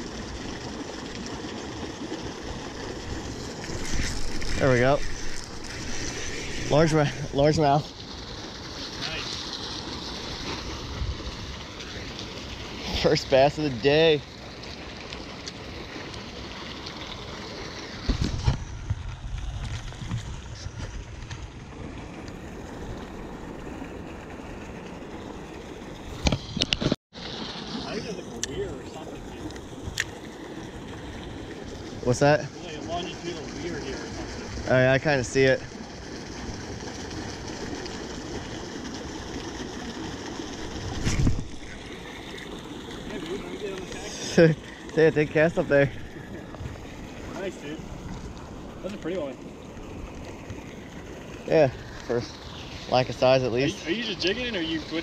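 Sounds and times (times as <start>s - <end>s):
creek water rushing: 0.0s - 18.4s, 21.3s - 55.0s
wind: 0.0s - 55.0s
wind rumble on microphone: 40.6s - 41.7s.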